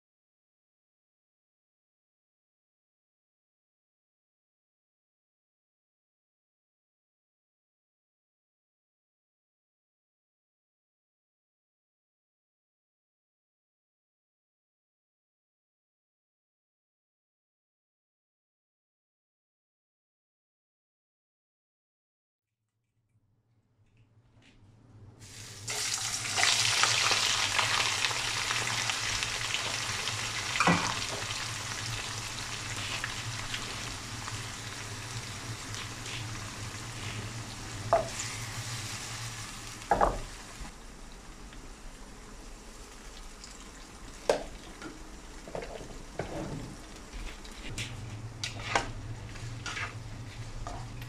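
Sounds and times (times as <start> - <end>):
onions sizzling in hot oil: 25.2 - 46.3
spatula stirring onions: 48.5 - 51.0.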